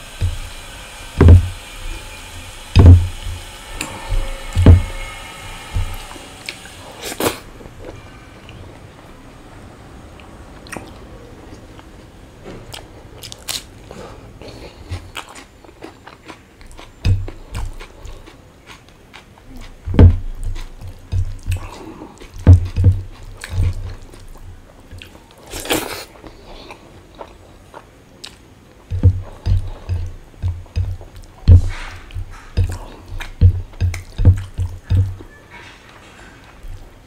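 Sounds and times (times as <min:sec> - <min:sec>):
dull thumps: 0:00.1 - 0:00.5, 0:01.2 - 0:01.6, 0:02.7 - 0:06.2, 0:17.0 - 0:17.8, 0:19.8 - 0:24.0, 0:28.9 - 0:35.3
chewing with wet mouth clicks: 0:10.2 - 0:11.9, 0:12.7 - 0:35.3.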